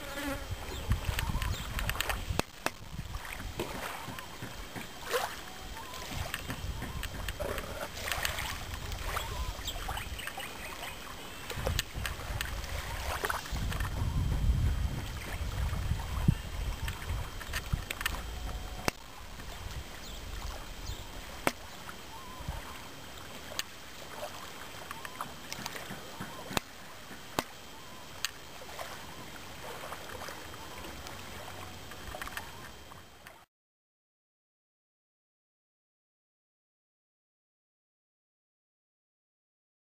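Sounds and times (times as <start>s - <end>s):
wind rumbling on microphone: 0.0s - 22.8s
open-air ambience hiss: 0.0s - 33.5s.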